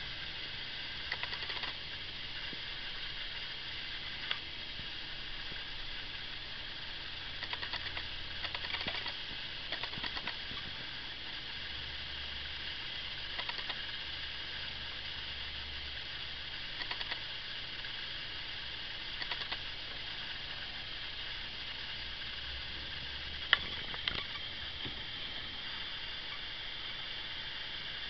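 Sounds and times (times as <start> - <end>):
steady hiss: 0.0 - 28.0
computer mouse clicks: 1.1 - 1.8, 7.4 - 10.7, 13.4 - 13.8, 16.8 - 17.2, 19.2 - 19.6.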